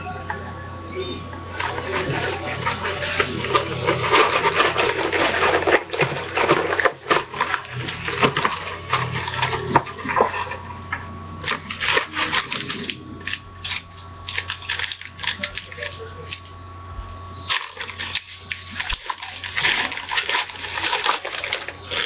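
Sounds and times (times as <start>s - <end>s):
packaging crinkling: 1.5s - 16.6s, 17.4s - 22.0s.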